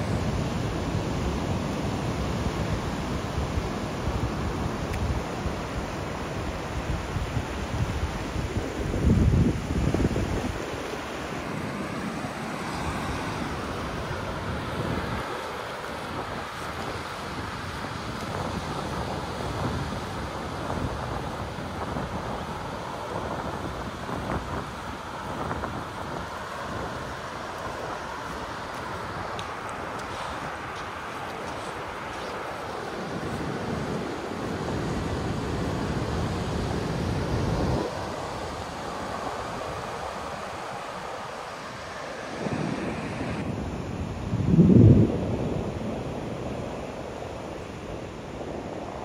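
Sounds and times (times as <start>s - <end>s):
steady rushing hiss: 0.0s - 49.0s
wind buffeting microphone: 0.0s - 49.0s.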